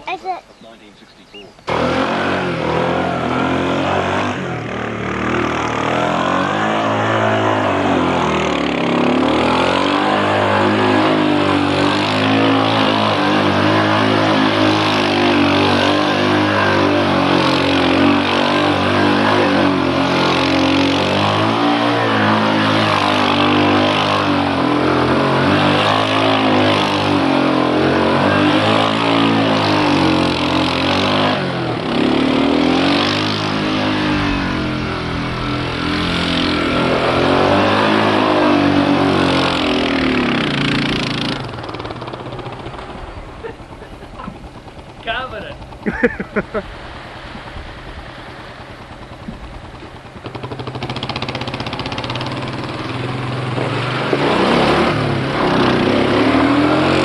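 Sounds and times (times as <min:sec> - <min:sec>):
quad bike engine revving: 0:01.5 - 0:57.0.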